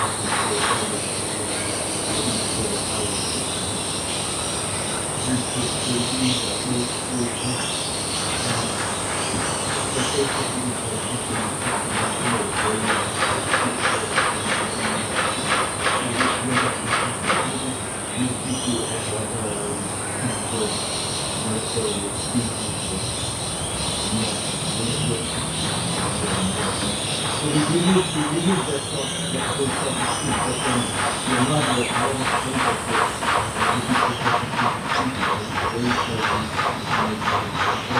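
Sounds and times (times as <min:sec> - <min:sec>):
faint scattered low sounds: 0:00.0 - 0:37.9
insects droning high-pitched: 0:00.0 - 0:37.9
rhythmic pulsing chirp: 0:00.0 - 0:37.9.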